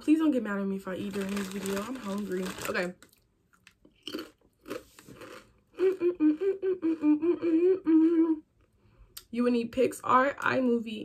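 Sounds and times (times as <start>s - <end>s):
crunchy bites and chewing: 1.1s - 5.6s
woman humming: 5.8s - 8.5s.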